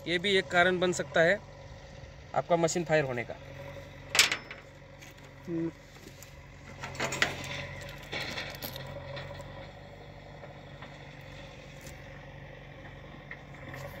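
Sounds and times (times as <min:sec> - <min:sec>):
low steady hum: 0:00.0 - 0:14.0
metal clip clinking and scraping: 0:04.1 - 0:05.3, 0:06.8 - 0:09.4.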